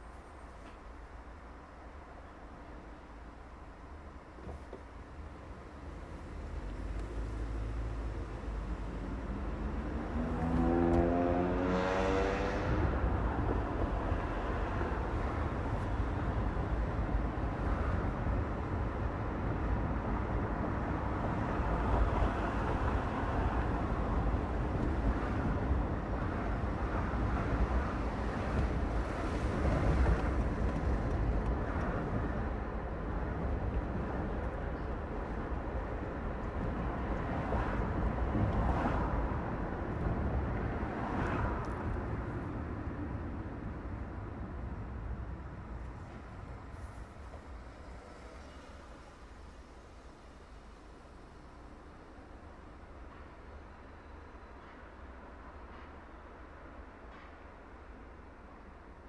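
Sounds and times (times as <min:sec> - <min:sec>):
car road and engine noise: 0:00.0 - 0:59.0
vehicles passing: 0:00.0 - 0:59.0
vehicle accelerating: 0:06.7 - 0:13.2.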